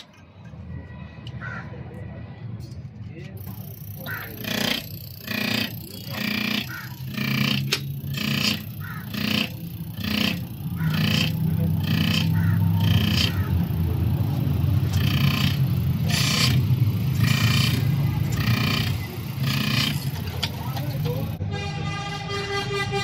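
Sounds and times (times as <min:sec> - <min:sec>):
motor hum: 0:03.4 - 0:21.4
injector hissing pulses: 0:03.6 - 0:21.4.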